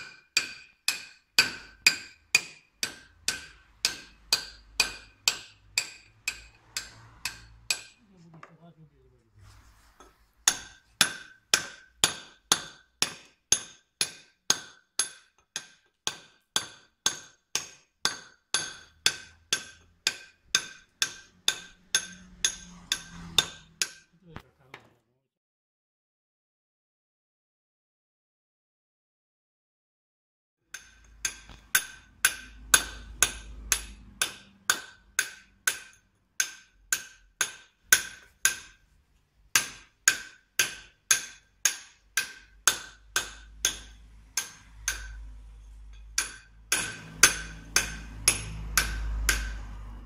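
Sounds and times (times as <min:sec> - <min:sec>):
hammer striking steel chisel: 0:00.0 - 0:08.0, 0:10.0 - 0:24.2, 0:30.7 - 0:50.0.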